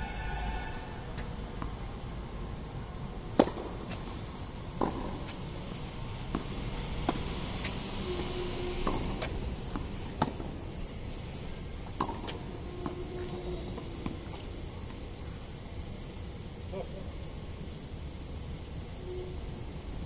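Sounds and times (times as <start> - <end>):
racket striking tennis ball: 3.3 - 5.5, 6.2 - 11.0, 11.8 - 14.5
tennis ball bouncing: 3.3 - 15.0.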